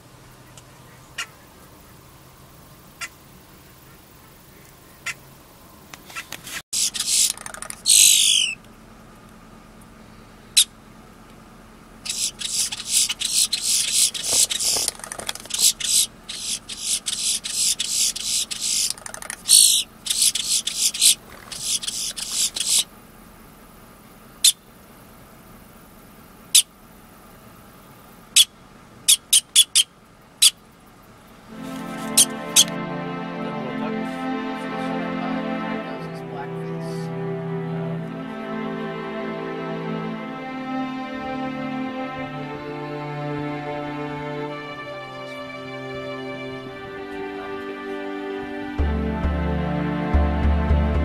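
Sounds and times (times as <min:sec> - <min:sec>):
bird sharp clacks: 0:05.9 - 0:08.6, 0:12.1 - 0:22.9
bird clicking rattles: 0:06.8 - 0:07.9, 0:12.4 - 0:15.9, 0:18.5 - 0:19.5
bird squealing notes: 0:06.8 - 0:08.6, 0:12.1 - 0:22.9.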